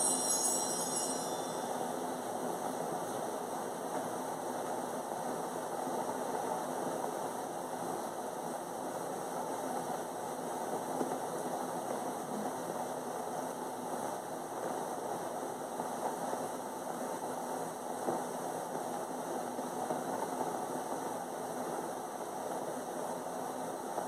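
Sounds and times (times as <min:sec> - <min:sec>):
bells jingling: 0:00.0 - 0:02.4
steady room background noise: 0:00.0 - 0:24.0.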